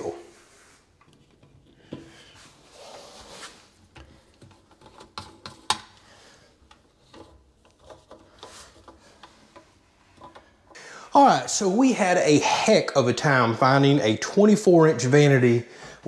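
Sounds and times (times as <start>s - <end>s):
hands handling plastic parts: 3.7s - 10.8s.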